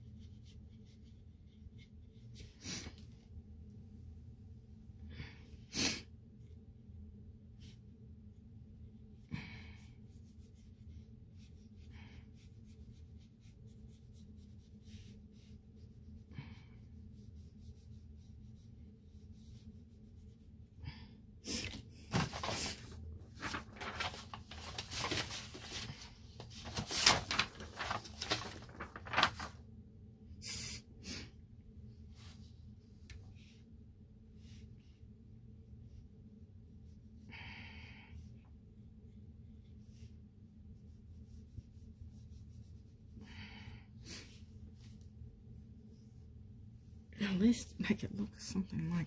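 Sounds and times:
faint steady hum: 0:00.0 - 0:49.0
rustling and scraping strokes: 0:21.5 - 0:29.6.

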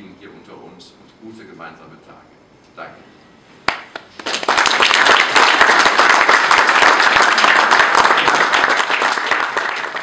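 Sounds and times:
audience applauding: 0:03.7 - 0:10.0.

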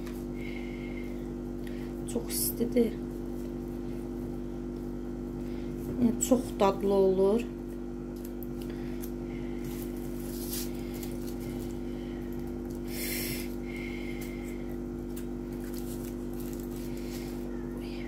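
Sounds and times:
electrical hum: 0:00.0 - 0:18.0
foil crinkling: 0:08.1 - 0:13.6, 0:15.0 - 0:17.6.

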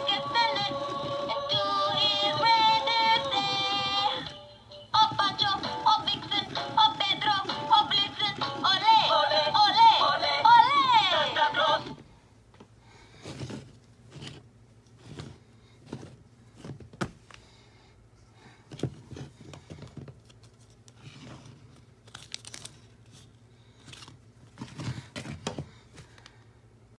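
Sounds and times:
rustling and crinkling handling noise: 0:11.9 - 0:17.6, 0:18.5 - 0:26.5.

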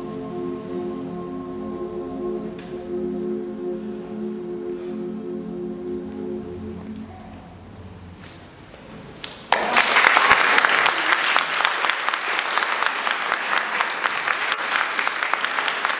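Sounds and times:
choir singing chord: 0:00.0 - 0:08.1
audience applause: 0:09.5 - 0:15.9.

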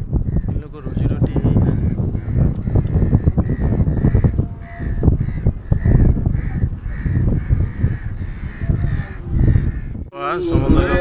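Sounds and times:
wind buffeting microphone: 0:00.0 - 0:11.0
crows cawing: 0:01.7 - 0:10.0.

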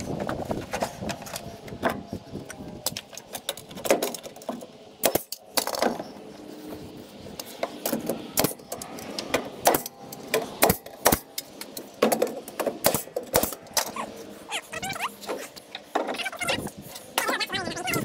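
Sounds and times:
nail gun firing: 0:12.0 - 0:13.6.

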